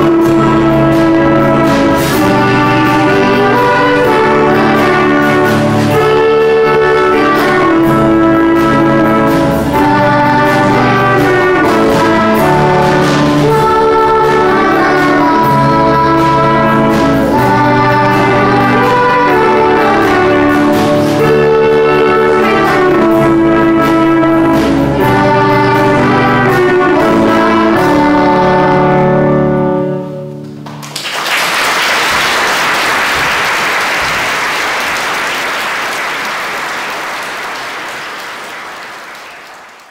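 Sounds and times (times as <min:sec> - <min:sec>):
children's choir singing: 0:00.0 - 0:30.0, 0:32.4 - 0:39.9
school orchestra playing: 0:00.0 - 0:39.9
audience applause: 0:30.6 - 0:39.9.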